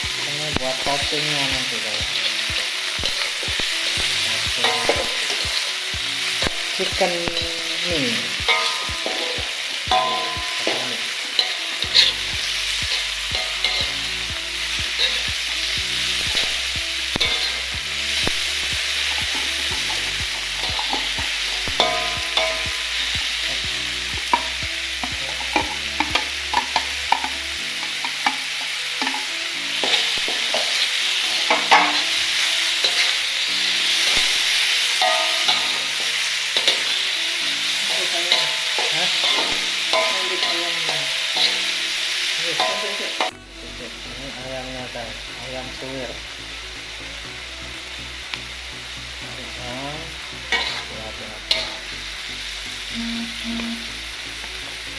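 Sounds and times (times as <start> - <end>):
vegetables sizzling in a wok: 0.0 - 54.9
spatula scraping a pan: 50.5 - 50.9.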